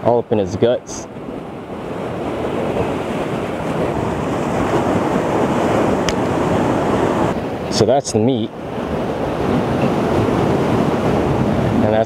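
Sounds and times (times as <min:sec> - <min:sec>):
ocean surf washing over rocks: 0:00.0 - 0:12.0.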